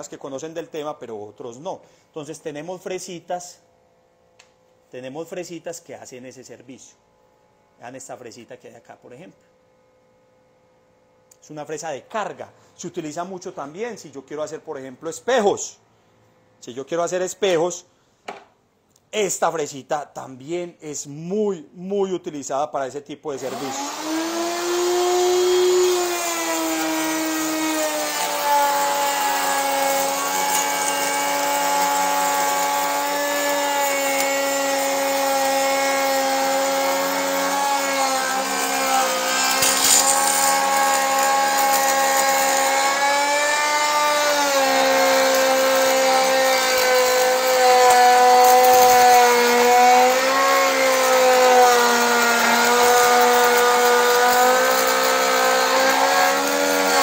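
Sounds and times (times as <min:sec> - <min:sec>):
router cutting wood: 0:23.3 - 0:57.0.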